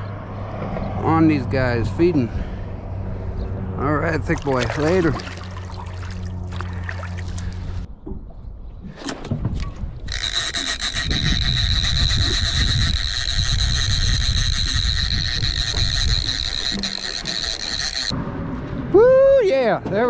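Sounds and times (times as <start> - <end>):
fishing reel whining: 10.0 - 18.2.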